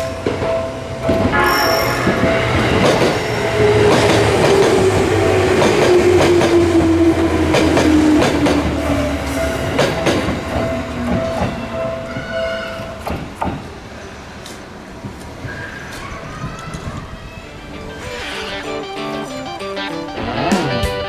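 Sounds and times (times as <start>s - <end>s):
crossing warning bell ringing: 0.6s - 5.7s.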